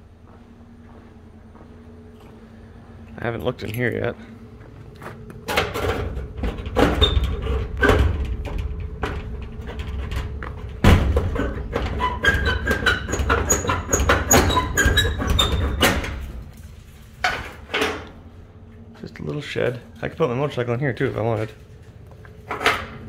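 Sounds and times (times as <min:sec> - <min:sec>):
metal door rattling and ringing: 0:05.5 - 0:16.4
knocks on metal door: 0:10.8 - 0:12.0.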